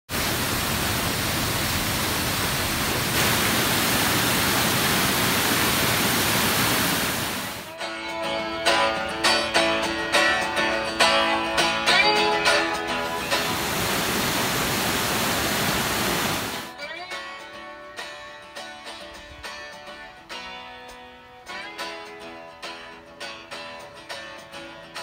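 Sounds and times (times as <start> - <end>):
waterfall roaring: 0.1 - 7.7, 13.1 - 16.7
plucked string music: 7.7 - 13.9, 16.7 - 25.0.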